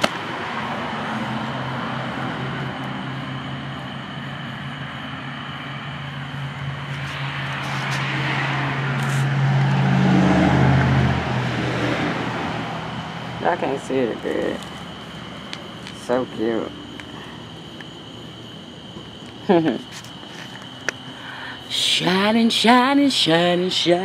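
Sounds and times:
car engine humming: 0.0 - 24.0.

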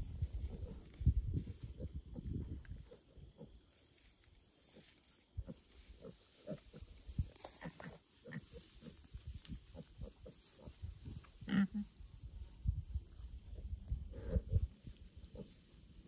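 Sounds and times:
pigs grunting: 11.4 - 11.9, 14.1 - 14.7.

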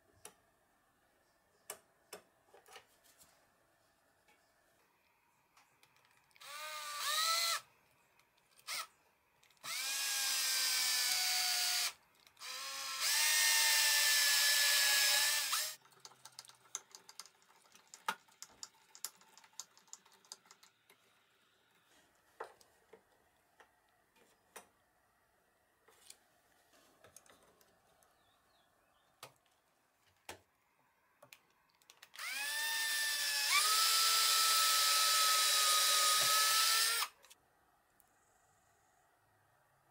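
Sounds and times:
cordless drill whining: 6.4 - 7.7, 8.6 - 8.9, 9.6 - 15.8, 32.2 - 37.2.

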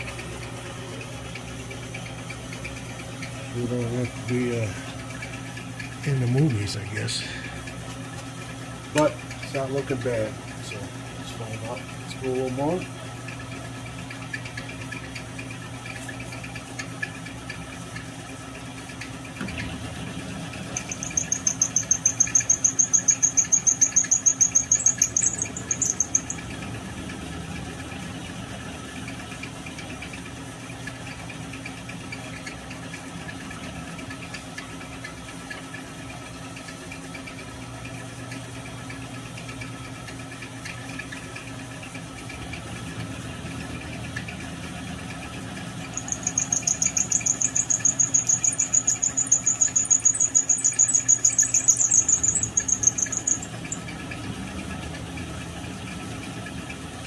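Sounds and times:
milling machine motor hum: 19.5 - 26.5, 45.9 - 53.8
cutter high-pitched pulsing squeal: 20.8 - 26.4, 46.0 - 53.9.

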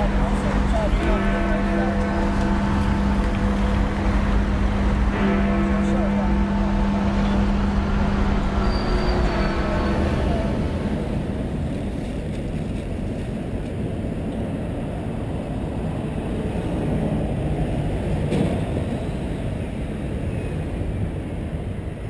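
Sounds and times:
low rumble of road traffic: 0.0 - 22.0.

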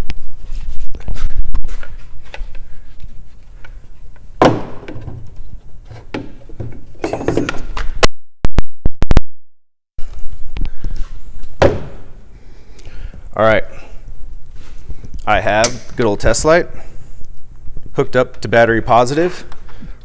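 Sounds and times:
dull thuds: 4.4 - 5.3, 11.6 - 12.1.

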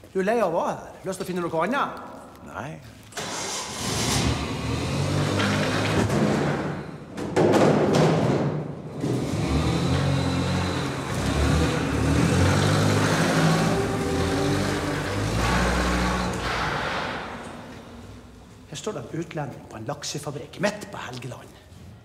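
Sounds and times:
forklift engine revving: 3.2 - 7.1, 8.9 - 18.7
background music: 10.1 - 16.7.

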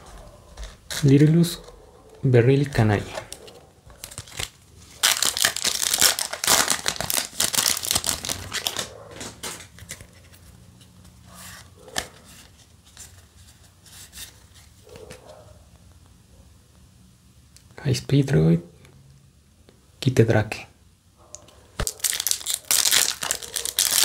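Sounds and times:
wrapper ripping and crinkling: 4.0 - 10.0, 21.8 - 24.0
cards sliding and rustling: 6.2 - 15.3.

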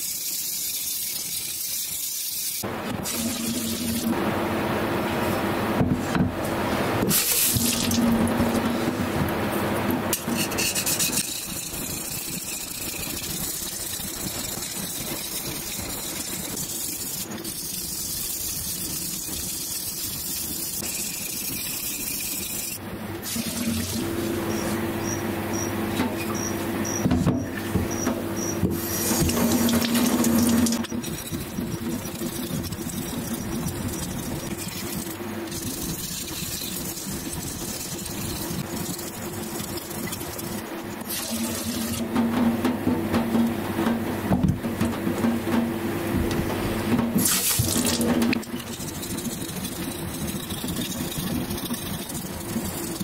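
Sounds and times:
metal rubbing on wet whetstone: 10.1 - 24.8, 28.8 - 42.1, 47.9 - 53.0
watery wash: 28.8 - 42.7, 47.0 - 53.0.

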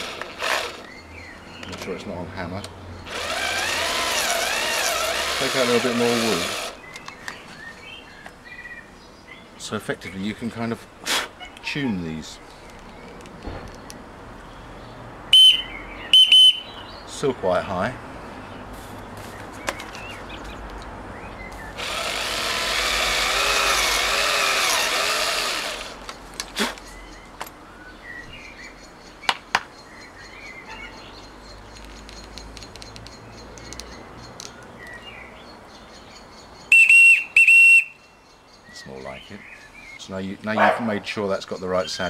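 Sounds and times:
power drill running: 0.0 - 0.8, 3.1 - 6.8, 21.8 - 26.0
whistle blown high notes: 15.4 - 16.7, 36.7 - 38.0.

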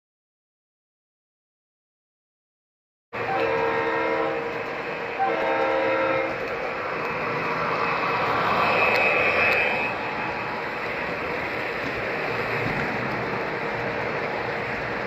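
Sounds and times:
model train horn: 3.2 - 4.6, 5.2 - 6.5, 8.6 - 10.0
model train rumbling past: 3.2 - 15.0.

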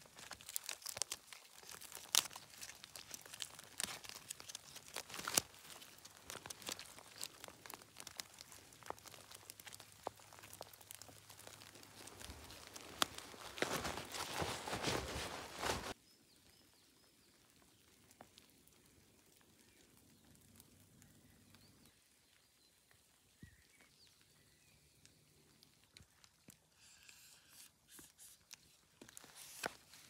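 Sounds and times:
rustling and clicking: 0.0 - 16.0.

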